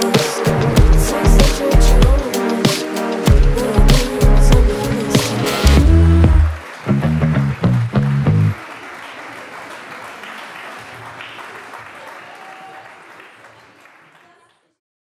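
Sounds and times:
audience applause: 5.6s - 14.8s.

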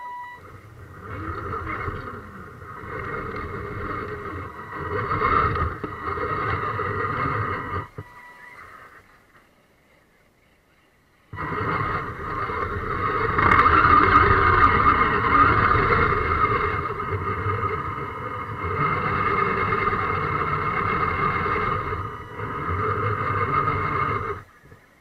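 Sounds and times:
electric motor and gears whining: 0.0s - 25.0s.

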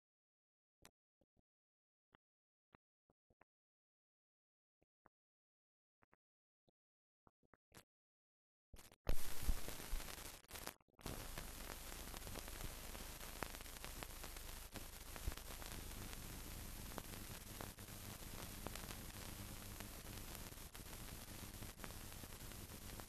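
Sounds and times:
clicks and crackles: 8.8s - 23.0s
film soundtrack hiss: 9.1s - 23.0s.

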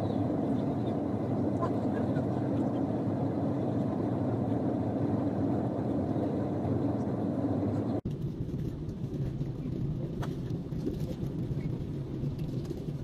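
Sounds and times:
jet airliner cabin noise: 0.0s - 13.0s.

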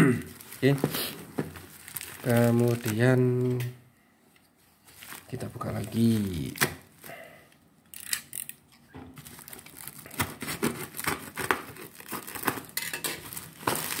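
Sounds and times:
plastic packaging crinkling: 0.2s - 3.7s, 4.8s - 7.1s, 9.2s - 14.0s
scissors cutting plastic: 9.5s - 14.0s.

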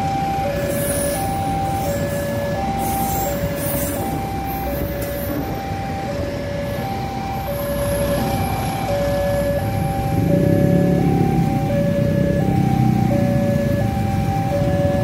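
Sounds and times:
two-tone crossing alarm: 0.0s - 15.0s
train wheels rumbling on rail: 0.6s - 5.8s.

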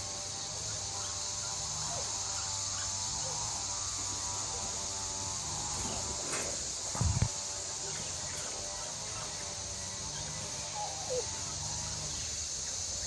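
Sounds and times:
insect chorus drone: 0.0s - 13.0s.

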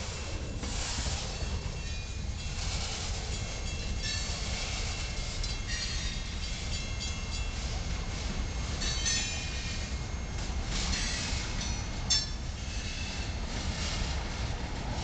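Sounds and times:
train cars rumbling over rails: 0.0s - 15.0s.

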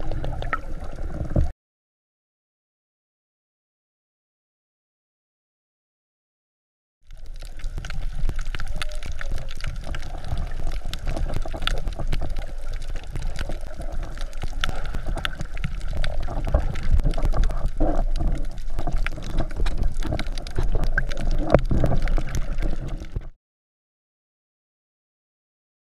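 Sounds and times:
muffled underwater water rush: 0.0s - 1.5s, 7.1s - 23.4s
sharp crackling clicks: 7.1s - 23.3s.

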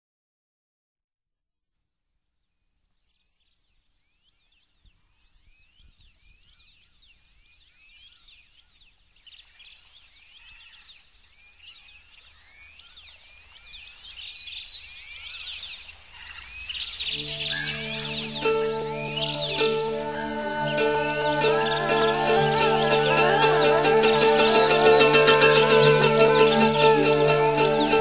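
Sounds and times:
small birds chirping: 3.0s - 28.0s.

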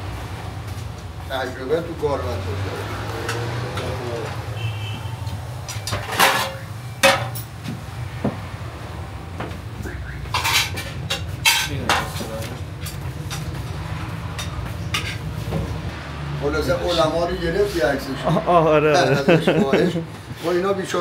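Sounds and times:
metal dishes clanking: 5.5s - 7.6s, 10.2s - 15.6s.

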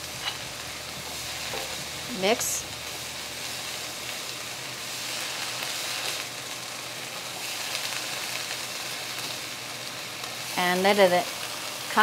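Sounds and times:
vegetables sizzling in frying pan: 0.0s - 12.0s.

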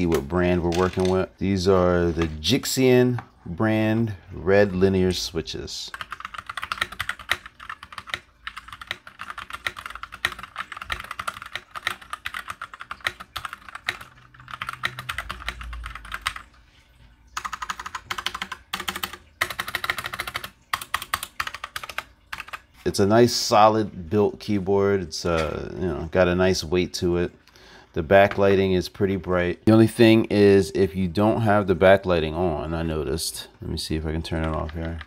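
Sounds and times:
fast typing on mechanical keyboard: 0.6s - 1.2s, 5.9s - 16.5s, 17.4s - 22.7s, 34.2s - 35.0s.

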